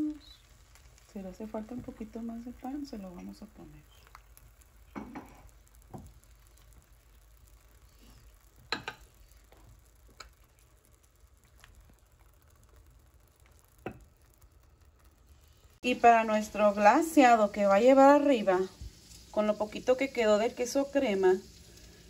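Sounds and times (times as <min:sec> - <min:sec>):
custard sizzling in a pan: 0:00.0 - 0:22.0.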